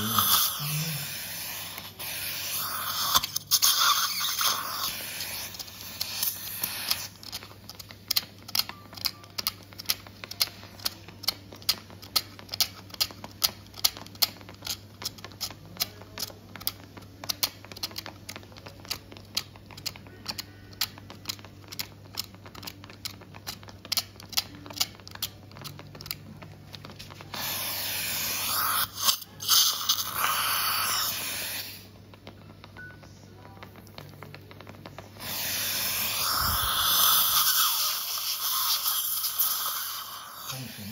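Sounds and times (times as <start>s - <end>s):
loud steady hiss: 35.2s - 40.9s.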